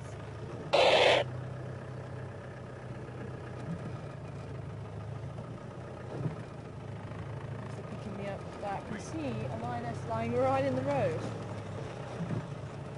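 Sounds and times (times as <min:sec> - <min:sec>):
vehicle engine running: 0:00.0 - 0:12.9
loud burst of hiss: 0:00.8 - 0:01.2.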